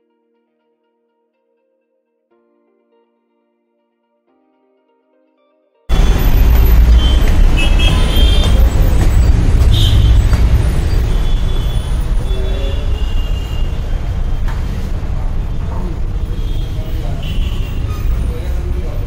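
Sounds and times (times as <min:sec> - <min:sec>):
low rumble of shop noise: 0:05.9 - 0:19.0.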